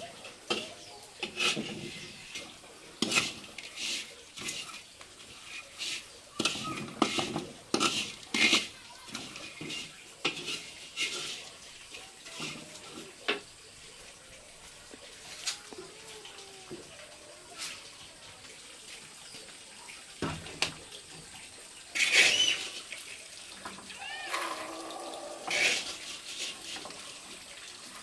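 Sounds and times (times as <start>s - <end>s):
metal utensil scraping a pan: 0.2s - 13.4s, 21.9s - 22.9s, 25.4s - 27.1s.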